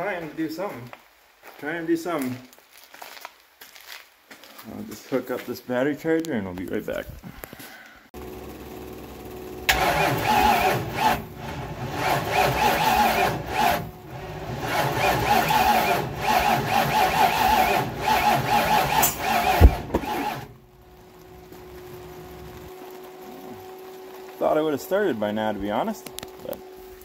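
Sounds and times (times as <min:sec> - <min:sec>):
engine starter cranking: 0:08.2 - 0:20.6
engine backfire bang: 0:18.5 - 0:20.5.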